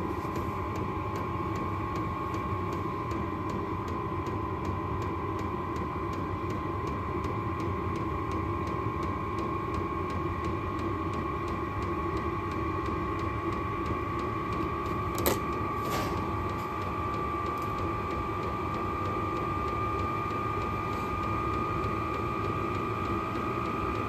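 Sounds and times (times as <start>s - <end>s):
heater blower fan whine: 0.0s - 24.0s.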